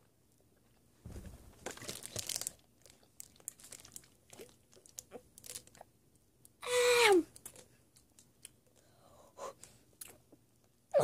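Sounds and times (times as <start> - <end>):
plastic bottle crinkling: 1.1 - 5.9.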